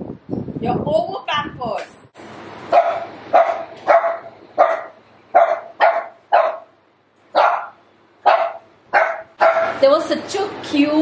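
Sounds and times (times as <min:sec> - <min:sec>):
small dog barking: 0:02.7 - 0:09.8.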